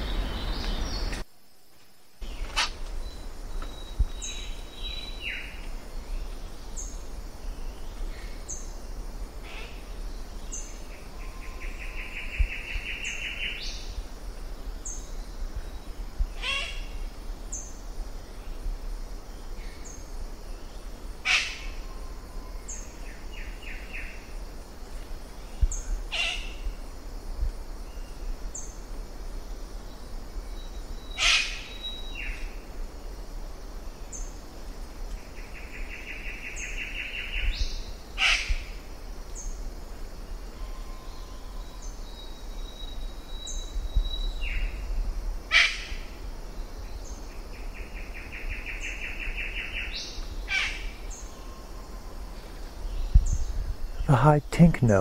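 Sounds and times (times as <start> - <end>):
loud harsh bird calls: 21.2 - 21.8, 26.1 - 26.6, 31.2 - 31.8, 38.2 - 38.7, 45.5 - 46.1, 49.5 - 51.4.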